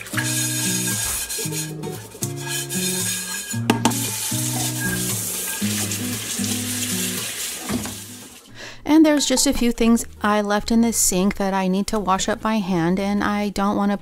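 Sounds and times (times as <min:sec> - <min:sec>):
brush scrubbing frying pan: 0:00.0 - 0:08.3
tap water running: 0:00.0 - 0:08.5
slow background music: 0:00.0 - 0:13.6
pan knocking on sink: 0:00.1 - 0:08.0.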